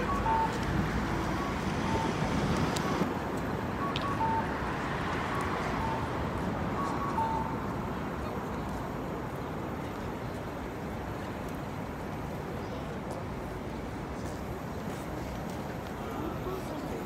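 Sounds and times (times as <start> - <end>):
passing car traffic: 0.0 - 11.4.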